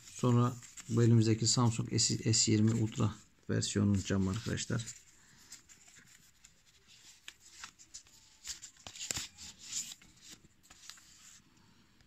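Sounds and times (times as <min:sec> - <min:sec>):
paper wrapping rustling: 0:00.0 - 0:11.4.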